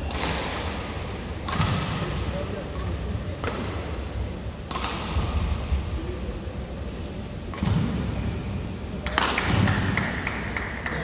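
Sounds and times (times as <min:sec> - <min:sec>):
rackets striking shuttlecock: 0:00.0 - 0:02.1, 0:02.7 - 0:04.0, 0:04.6 - 0:05.9, 0:07.4 - 0:08.2
low rumble of sports hall: 0:00.0 - 0:11.0.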